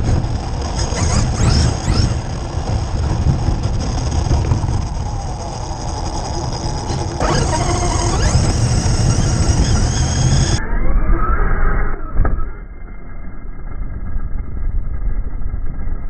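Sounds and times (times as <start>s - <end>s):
electric motor whining: 0.0s - 12.4s
steady low rumble: 0.0s - 16.0s.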